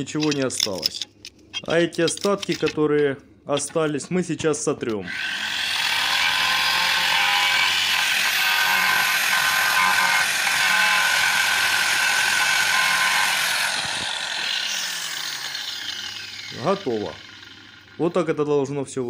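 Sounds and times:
angle grinder grinding concrete: 5.0 - 18.4.

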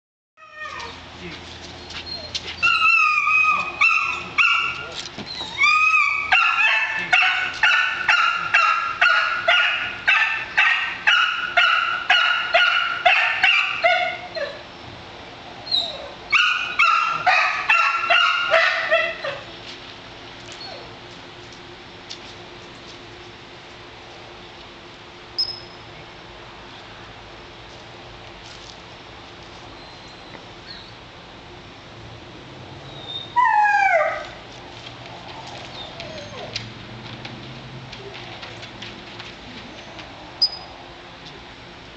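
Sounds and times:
puppy whining: 0.4 - 1.0, 1.8 - 7.6, 13.8 - 14.6, 15.6 - 19.5, 20.5 - 21.0, 32.8 - 34.4, 35.4 - 36.6
puppy barking: 2.8 - 4.9, 6.0 - 14.6, 16.3 - 19.4.

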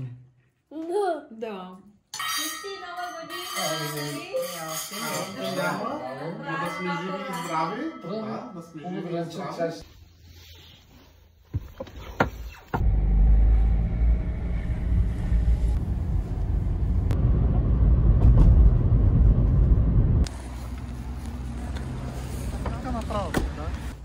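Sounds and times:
quiet street noise: 12.4 - 24.0
car engine rumble from inside: 12.7 - 24.0.

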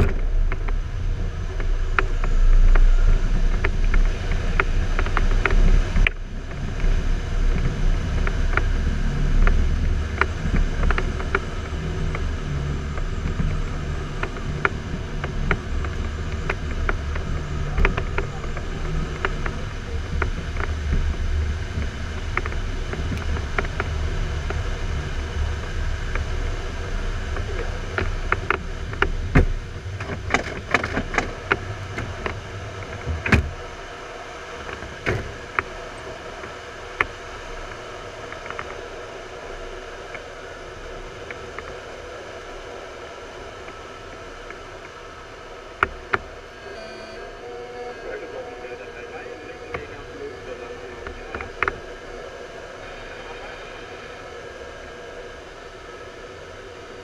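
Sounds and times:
airflow rushing past cockpit: 0.0 - 57.0
clicks and knocks in cockpit: 27.4 - 33.6.

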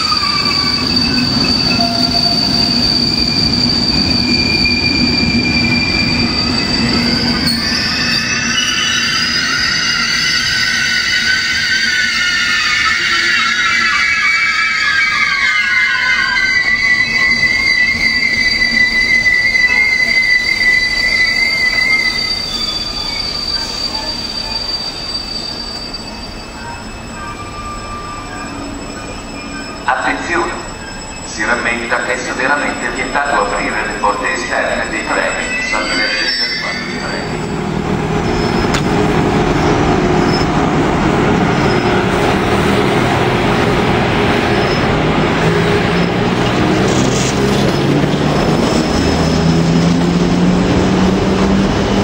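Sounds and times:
electric locomotive hum: 0.0 - 52.0
train wheels squealing on rails: 0.0 - 52.0
rumble of wheels on track: 37.2 - 52.0.

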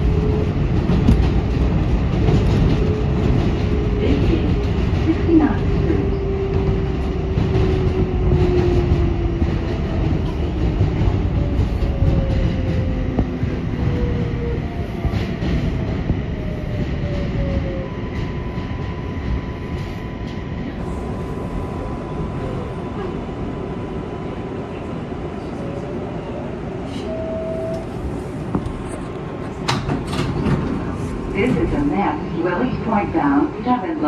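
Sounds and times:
subway train wheels rumbling on rails: 0.0 - 34.0.

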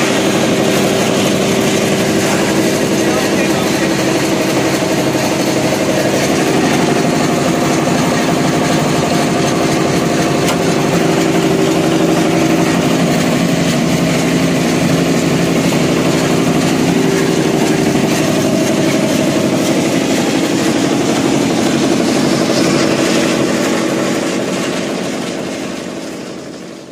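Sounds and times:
machine motor humming: 0.0 - 26.9.

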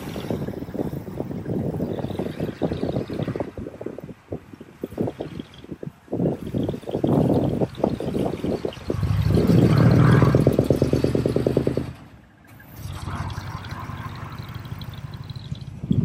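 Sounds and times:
diesel truck engine driving past: 8.8 - 16.0.

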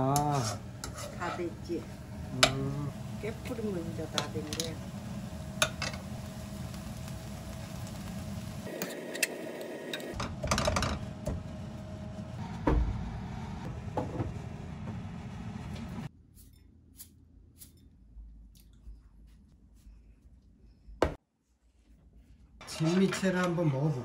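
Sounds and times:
metal spoon scraping frying pan: 0.2 - 1.8.

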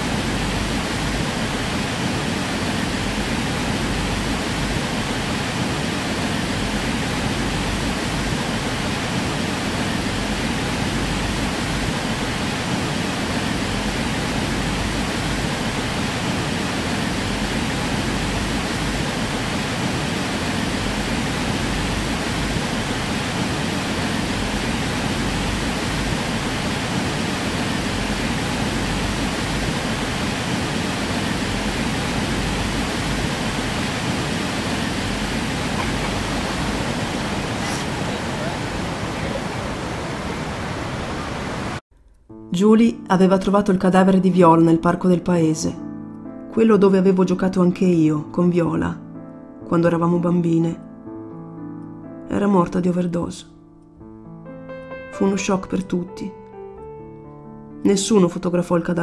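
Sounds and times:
loud steady rushing noise: 0.0 - 41.8.

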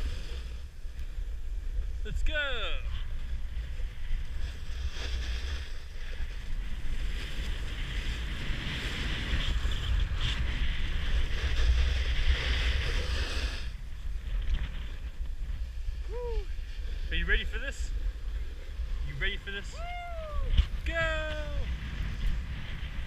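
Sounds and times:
wind rumbling on microphone: 0.0 - 23.0
ski edges scraping packed snow: 3.7 - 16.0.

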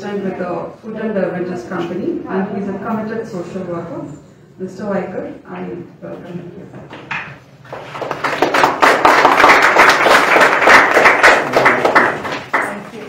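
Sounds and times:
audience applauding: 7.7 - 13.0.

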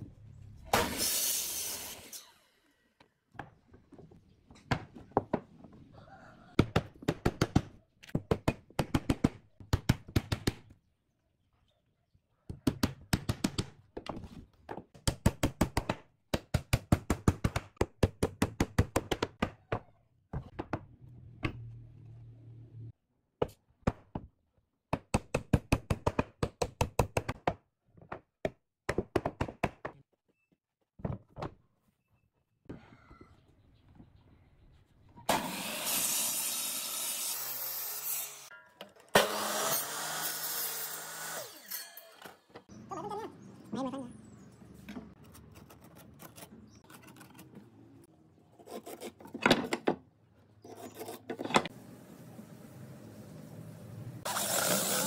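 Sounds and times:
miter saw cutting wood: 35.3 - 38.5, 39.2 - 42.2, 54.3 - 55.0.

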